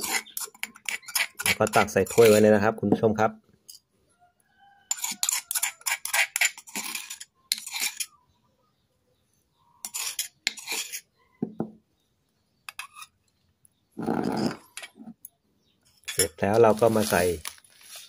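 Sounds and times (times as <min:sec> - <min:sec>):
metal spoon scraping stone mortar: 0:00.0 - 0:03.1, 0:04.9 - 0:08.2, 0:09.8 - 0:11.2, 0:12.6 - 0:13.3, 0:14.0 - 0:15.3, 0:15.9 - 0:18.0.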